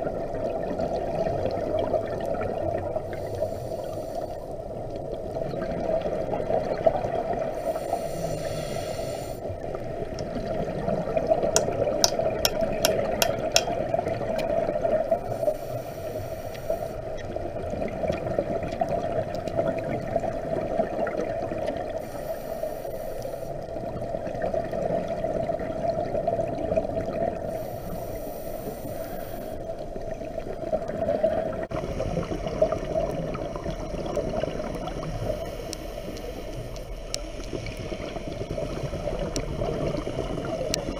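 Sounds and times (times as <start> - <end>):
diver breathing through regulator: 3.1 - 4.5, 7.5 - 9.5, 27.4 - 29.7, 35.1 - 39.3
sharp clicks: 11.6 - 13.8.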